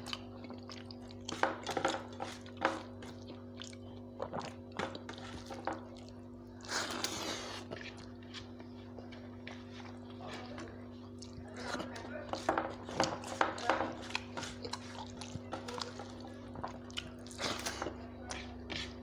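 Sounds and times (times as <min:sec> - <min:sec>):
chewing: 0:00.0 - 0:19.0
steady low hum: 0:00.0 - 0:19.0
fingers mixing rice on steel plate: 0:11.2 - 0:16.3.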